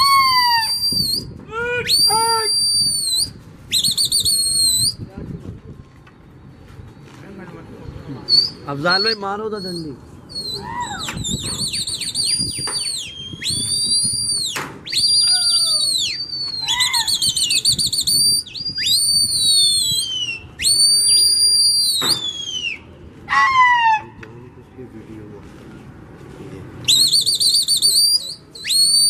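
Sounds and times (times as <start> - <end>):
loud shrill human whistling: 0.0 - 5.0, 8.3 - 22.8, 26.9 - 29.0.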